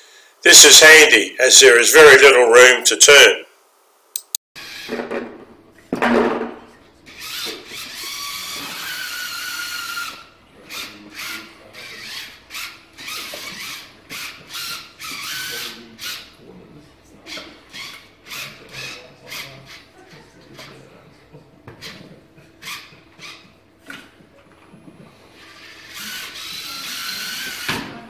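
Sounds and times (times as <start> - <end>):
robot gear motors whining: 25.5 - 27.7.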